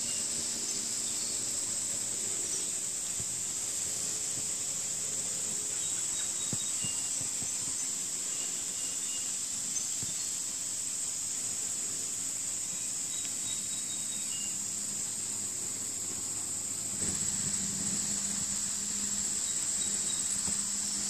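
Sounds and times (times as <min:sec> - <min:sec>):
insect chorus drone: 0:00.0 - 0:21.0.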